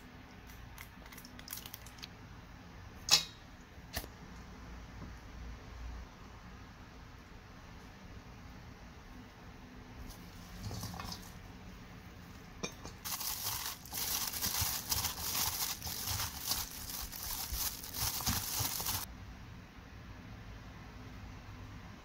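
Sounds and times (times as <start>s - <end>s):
plastic glove crinkling: 13.0s - 19.1s.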